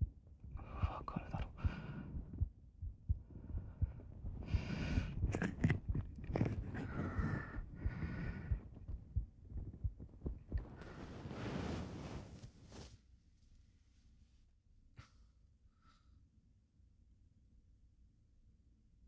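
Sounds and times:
soft low thumps: 0.0s - 12.7s
person breathing close: 0.6s - 2.5s, 3.2s - 9.0s.

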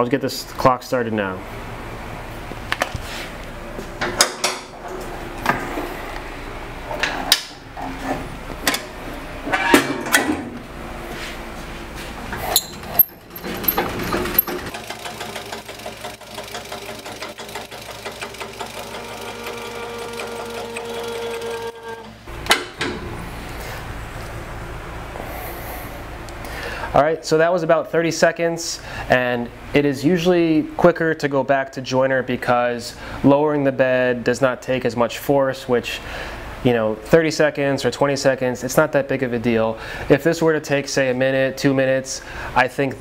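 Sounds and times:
metal clunks and clicks: 7.0s - 8.9s, 22.0s - 23.2s
handwheel cranking fast clicking: 13.0s - 21.9s.

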